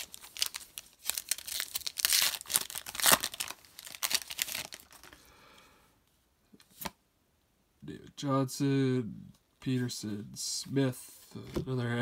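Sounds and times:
foil wrapper tearing and crinkling: 0.0 - 5.2.

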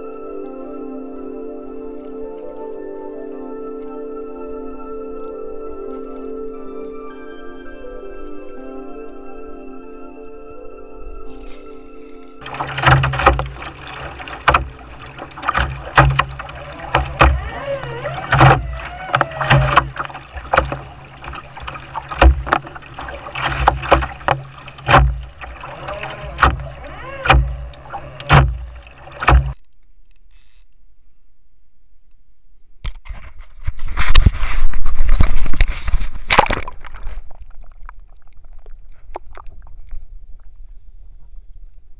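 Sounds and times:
kayak hull thuds: 12.4 - 29.6
loud water sloshing: 12.4 - 29.6
paddle splashing in water: 12.4 - 29.6, 33.8 - 39.9.

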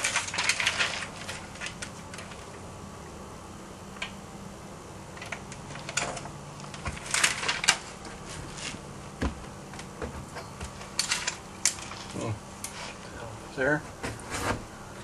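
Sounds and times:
foil tape crinkling: 0.0 - 2.6, 5.2 - 8.8
low steady hum: 0.0 - 15.0.

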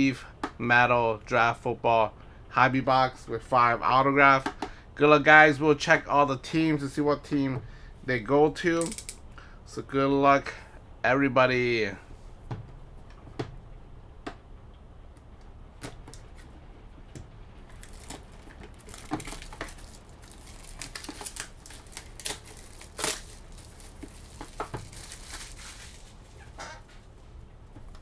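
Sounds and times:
plastic shrink-wrap tearing: 17.7 - 26.6.

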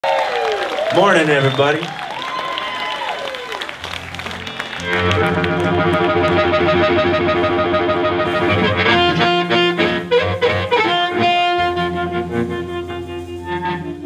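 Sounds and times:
live blues band: 1.5 - 14.0
electric guitar: 2.2 - 14.0
amplified harmonica chord: 3.7 - 14.0.

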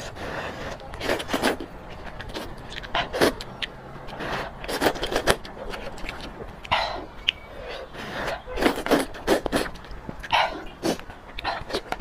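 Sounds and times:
wet mouth clicks: 0.7 - 12.0
person slurping noodles: 4.1 - 5.4, 6.7 - 9.8.

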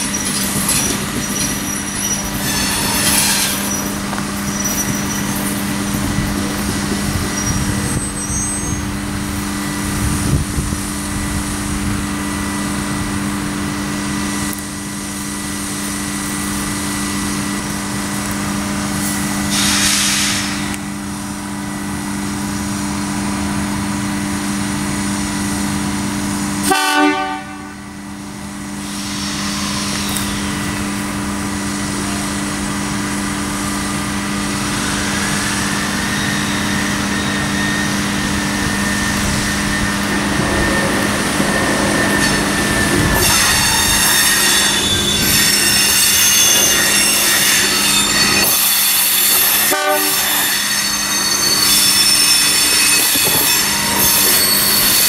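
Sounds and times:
railcar engine running: 0.0 - 55.0
train horn blast: 26.6 - 27.8, 49.6 - 50.6.

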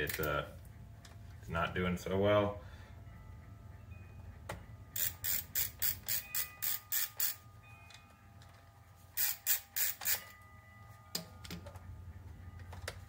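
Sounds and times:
ratcheting screwdriver clicking: 5.0 - 7.4, 9.2 - 10.3.

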